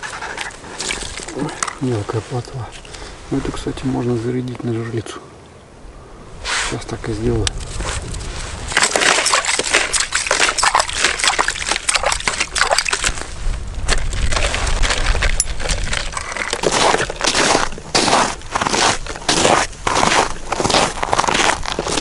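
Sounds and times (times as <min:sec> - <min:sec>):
footsteps crunching in snow: 0:07.6 - 0:22.0
ice scoop scraping slush: 0:08.7 - 0:13.2, 0:14.2 - 0:22.0.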